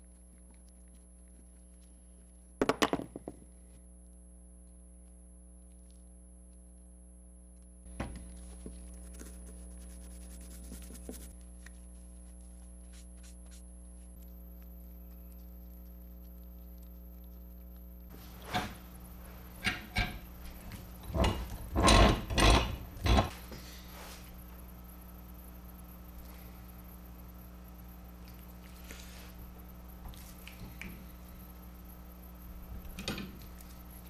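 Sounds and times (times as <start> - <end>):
steady hum: 0.0 - 34.0.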